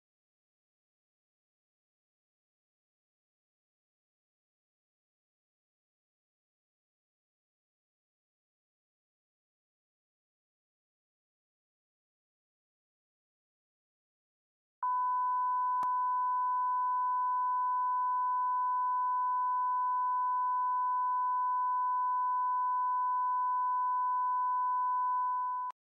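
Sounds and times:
electronic test tone beep: 14.8 - 25.8
faint higher tone: 14.8 - 25.8.

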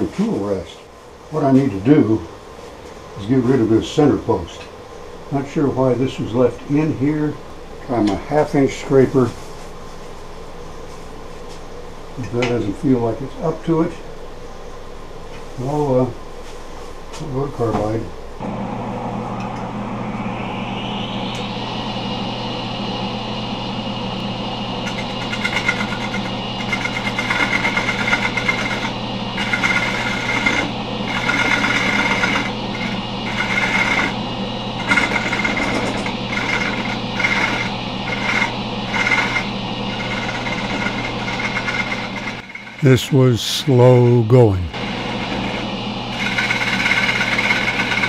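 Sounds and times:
lathe motor whine: 18.4 - 42.4, 45.0 - 48.0.

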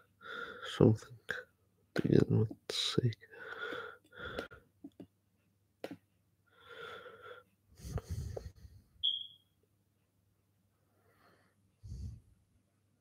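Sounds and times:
man breathing into microphone: 6.6 - 8.7
brief high squeak: 9.0 - 9.4.

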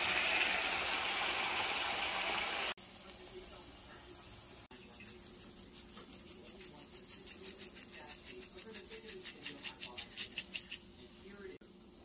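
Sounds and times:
spice shaker rattling: 4.8 - 11.0.

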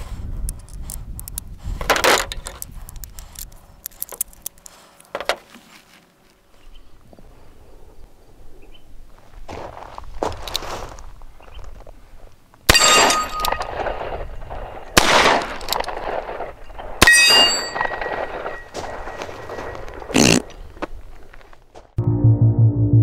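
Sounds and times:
steel plate target ringing: 12.7 - 13.7, 17.0 - 19.2.

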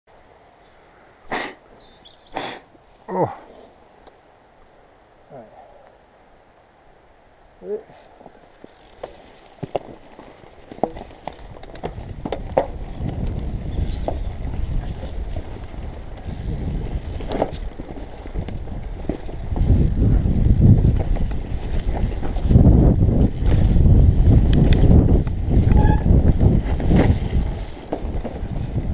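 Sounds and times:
bike clicks and rattles: 8.2 - 28.9
wind buffeting microphone: 11.0 - 28.9.

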